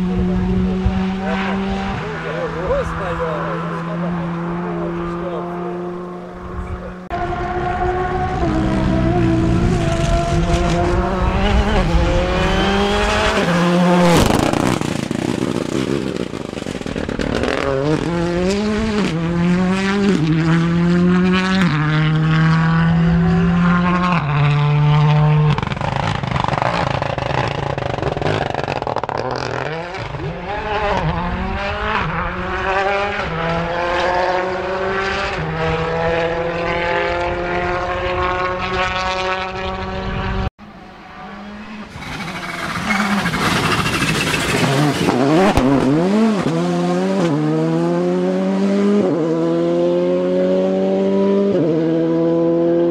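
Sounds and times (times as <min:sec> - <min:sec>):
rally car passing by: 0:00.0 - 0:27.6
rally car engines revving through gears: 0:00.0 - 0:52.9.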